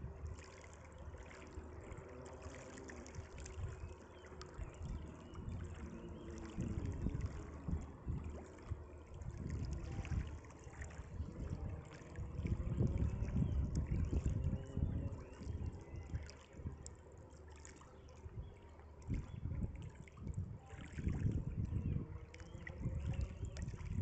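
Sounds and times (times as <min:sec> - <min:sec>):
small waves lapping: 0:00.0 - 0:24.0
wind buffeting microphone: 0:04.5 - 0:16.8, 0:18.2 - 0:24.0.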